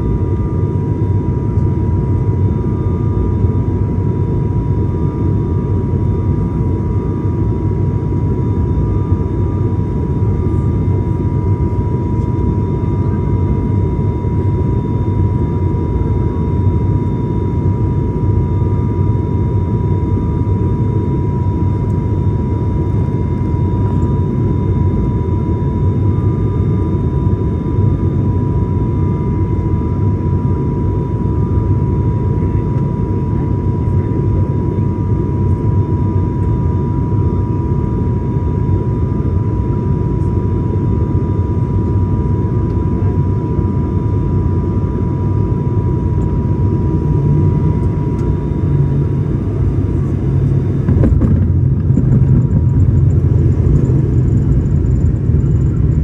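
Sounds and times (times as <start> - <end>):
aircraft engine drone in cabin: 0.0 - 56.0
constant high tone: 51.8 - 56.0.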